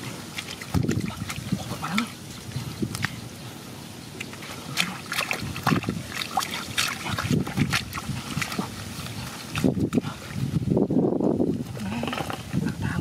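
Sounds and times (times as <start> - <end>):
hands splashing in muddy water: 0.0 - 3.3, 4.2 - 10.4.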